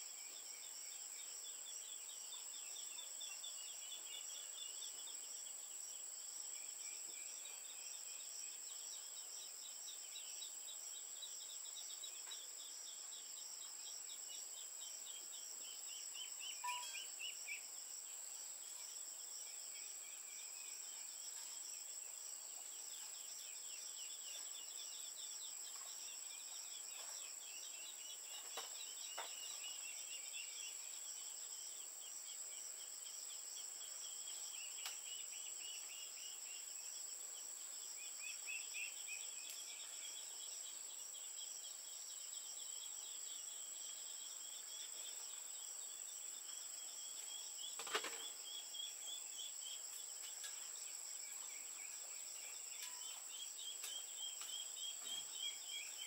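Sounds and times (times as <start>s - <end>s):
insects chirping: 0.0s - 56.0s.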